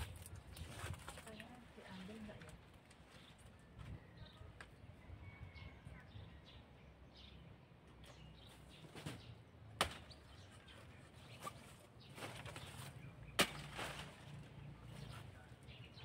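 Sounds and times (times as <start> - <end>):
machete chopping stalk: 9.8 - 10.2, 13.4 - 14.0.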